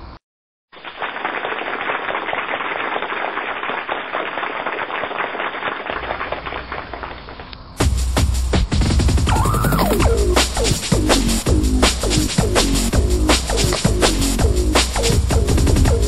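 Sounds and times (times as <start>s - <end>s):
rapid crackling pops: 0.7s - 7.9s.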